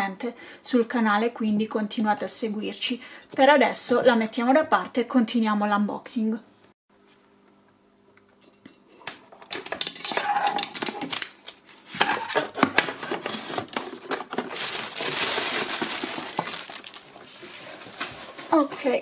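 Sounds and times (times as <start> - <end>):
plastic wrapping rustling: 9.6 - 19.0.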